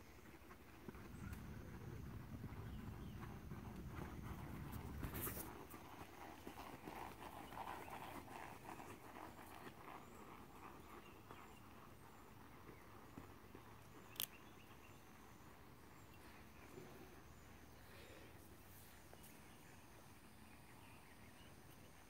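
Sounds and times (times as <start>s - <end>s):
horse hoofbeats on sand: 0.0s - 15.4s.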